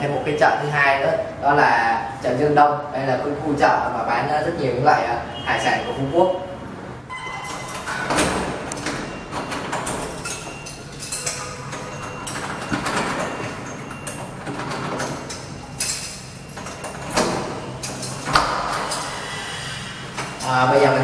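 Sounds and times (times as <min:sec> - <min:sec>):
key rattling in a lock: 0:07.5 - 0:19.1.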